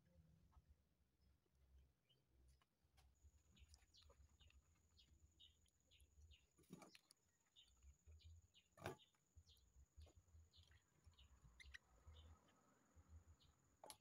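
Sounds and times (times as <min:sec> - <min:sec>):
faint bird-like chirps: 0:03.2 - 0:14.0.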